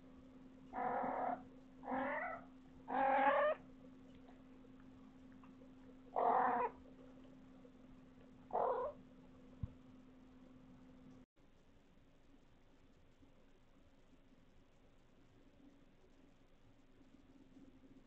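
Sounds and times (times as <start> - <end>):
cat meowing: 0.8 - 3.6, 6.2 - 6.8, 8.5 - 9.0.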